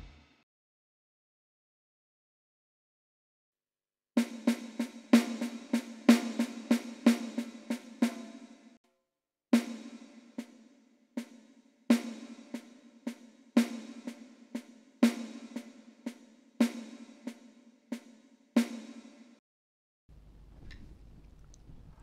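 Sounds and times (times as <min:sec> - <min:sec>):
electronic drum strokes: 0:00.0 - 0:00.2.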